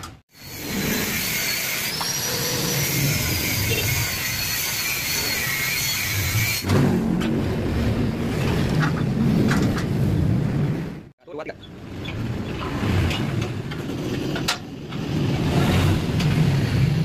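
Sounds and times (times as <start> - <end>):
high wavering motor whine: 0.4 - 6.6.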